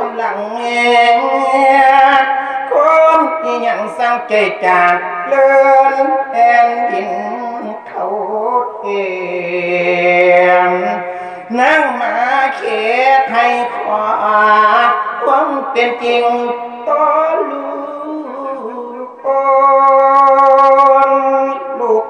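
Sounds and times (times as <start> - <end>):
man singing into a microphone: 0.0 - 22.0
singer breathing: 2.3 - 2.7, 11.0 - 11.5.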